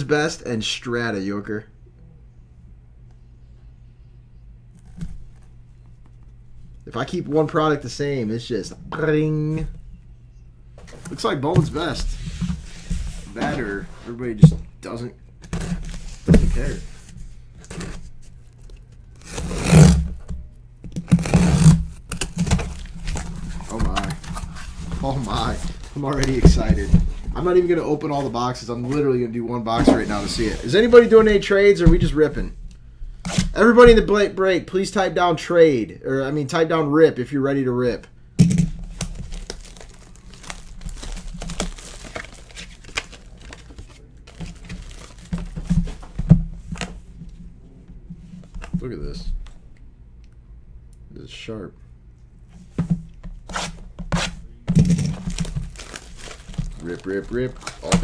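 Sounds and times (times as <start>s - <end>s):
packing tape tearing on cardboard: 19.2s - 25.9s, 38.5s - 46.0s, 53.3s - 58.0s
cardboard box rustling: 22.2s - 27.5s, 38.9s - 46.9s, 55.0s - 58.0s.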